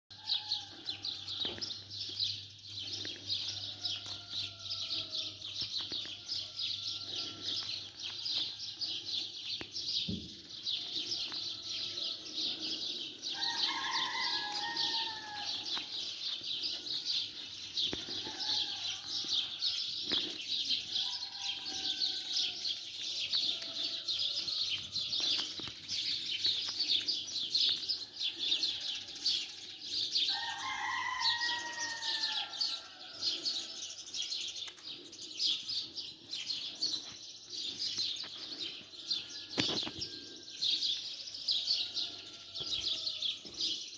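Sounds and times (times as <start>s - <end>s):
sparrows chirping: 0.1s - 43.9s
rooster crowing: 13.3s - 15.9s, 18.1s - 19.8s, 30.3s - 33.6s.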